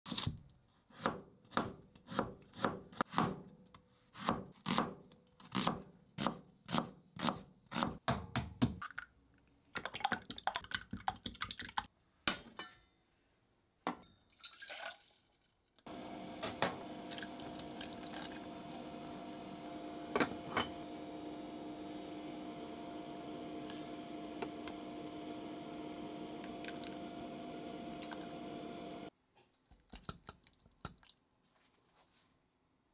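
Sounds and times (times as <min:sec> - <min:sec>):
water pouring into metal pot: 0:14.3 - 0:15.8, 0:17.0 - 0:18.8, 0:26.4 - 0:27.0
cooktop hiss and hum: 0:15.9 - 0:29.1.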